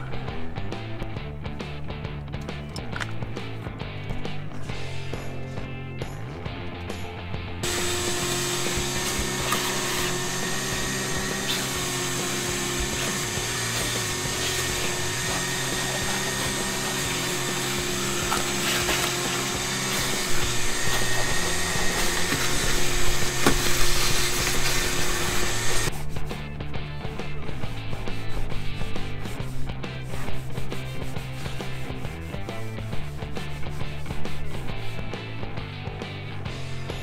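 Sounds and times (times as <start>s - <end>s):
shop vacuum whining: 7.6s - 25.9s.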